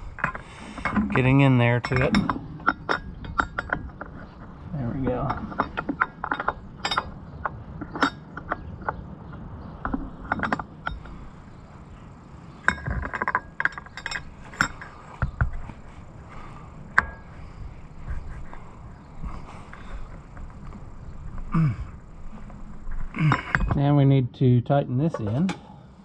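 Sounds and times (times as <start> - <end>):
metallic clinks of tools and fitting: 1.8 - 4.0, 5.2 - 7.2.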